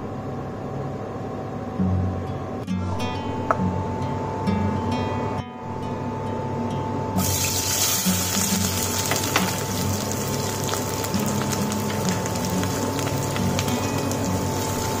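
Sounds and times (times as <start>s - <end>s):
onions frying in hot oil: 7.2s - 15.0s.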